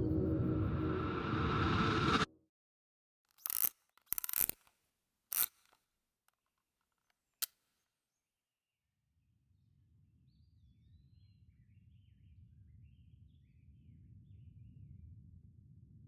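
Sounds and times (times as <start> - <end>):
mechanical scraping clicks: 3.3 - 4.7, 5.3 - 5.8.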